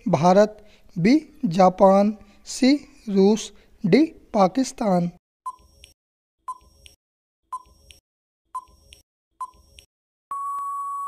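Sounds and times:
long steady beep: 10.3 - 11.0.

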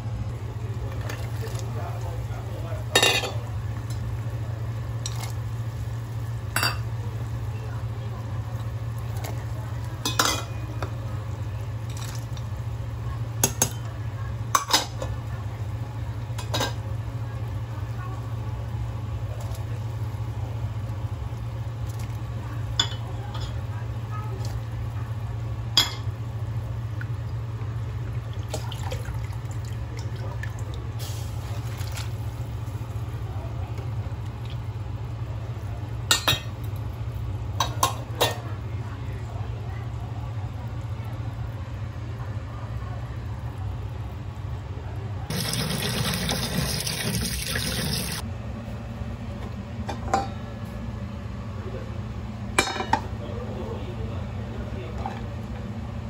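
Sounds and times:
utensils clinking against pot: 2.9 - 3.4.

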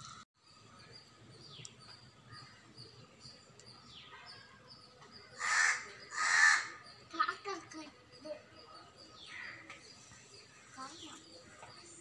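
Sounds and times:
crow cawing: 5.4 - 6.8.

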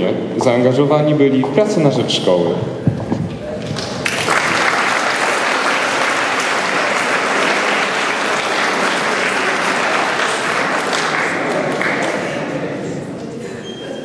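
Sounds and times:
audience applauding: 3.6 - 12.6.

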